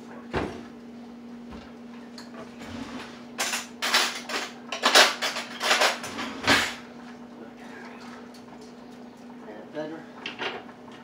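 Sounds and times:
utensils and dishes clattering: 2.2s - 6.8s.

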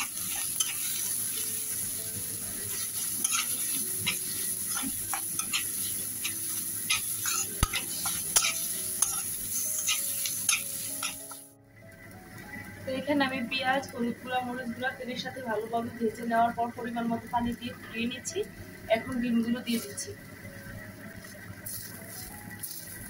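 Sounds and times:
metal spatula scraping a pan: 0.0s - 1.4s, 2.6s - 11.3s
onions sizzling in oil: 0.0s - 23.0s.

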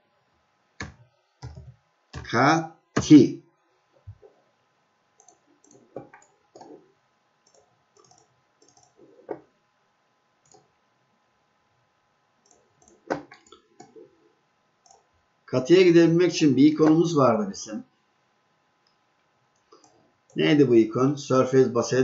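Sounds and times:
computer mouse clicking: 0.8s - 2.3s, 5.2s - 9.4s, 10.4s - 10.7s, 12.4s - 14.1s, 14.8s - 15.1s, 19.6s - 20.4s.

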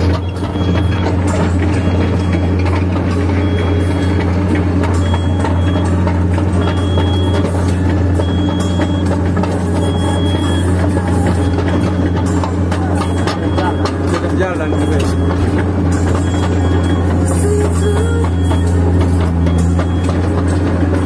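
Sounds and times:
diesel engine running: 0.0s - 21.0s
travel alarm beeping: 0.0s - 21.0s.

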